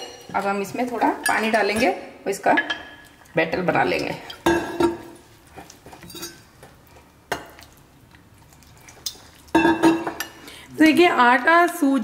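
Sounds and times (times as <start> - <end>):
spoon stirring thick batter: 5.0 - 11.0
spoon clinking on glass: 6.0 - 6.4.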